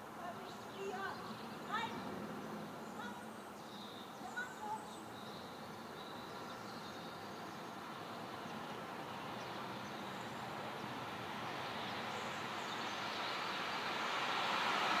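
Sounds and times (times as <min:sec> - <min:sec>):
vehicle passing on street: 0:07.2 - 0:15.0.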